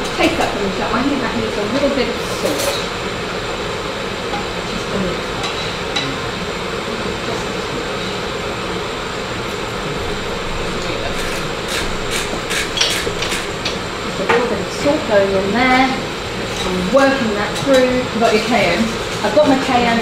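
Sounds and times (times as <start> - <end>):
kitchen background hiss: 0.0 - 20.0
metal utensils clinking: 11.1 - 13.8.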